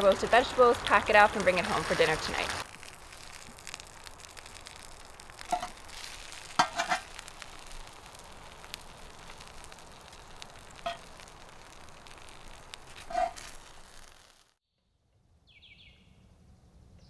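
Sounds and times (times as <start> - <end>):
vegetables sizzling on griddle: 0.0 - 14.6
metal spatula scraping pan: 6.6 - 7.1, 13.0 - 13.5.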